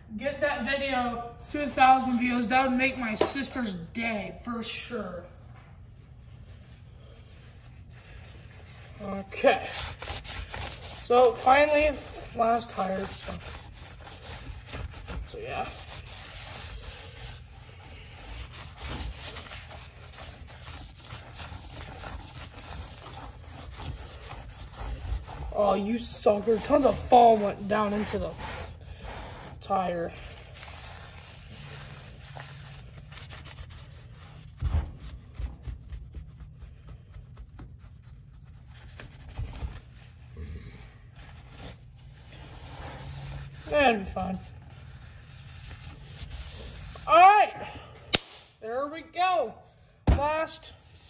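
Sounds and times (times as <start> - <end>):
rag scrubbing rubber tire: 9.0 - 32.4.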